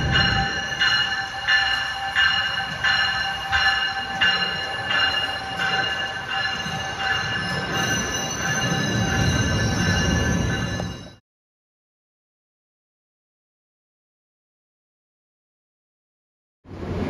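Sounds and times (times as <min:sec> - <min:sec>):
train bell ringing: 0:00.0 - 0:11.2
train wheels rumbling: 0:00.0 - 0:11.2.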